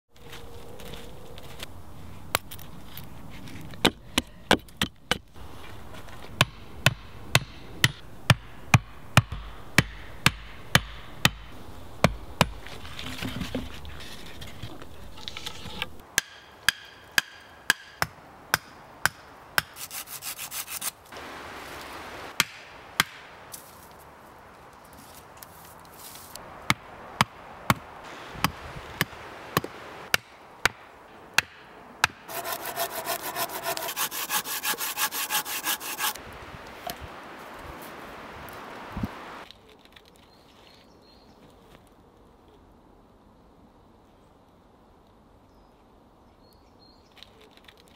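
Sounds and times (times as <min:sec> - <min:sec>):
scraping and rubbing wood: 0:12.4 - 0:16.0, 0:32.3 - 0:36.2.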